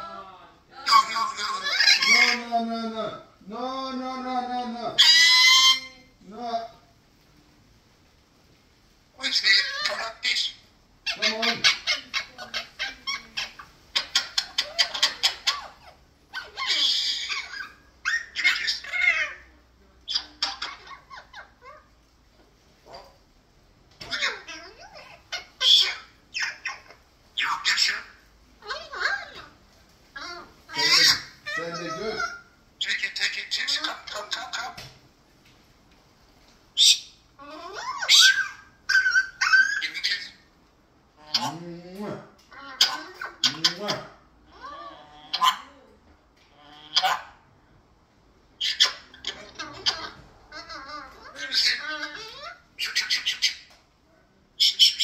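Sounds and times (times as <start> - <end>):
parrot harsh rasping call: 0.8 - 2.5, 5.0 - 6.2, 9.2 - 19.5, 20.1 - 21.9, 24.0 - 34.8, 36.8 - 40.5, 42.5 - 45.8, 46.5 - 47.4, 48.6 - 53.7, 54.6 - 55.0.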